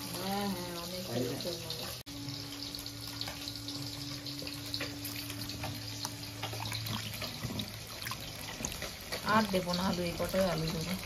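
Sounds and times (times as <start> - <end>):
water splashing in a bowl: 3.1 - 11.0.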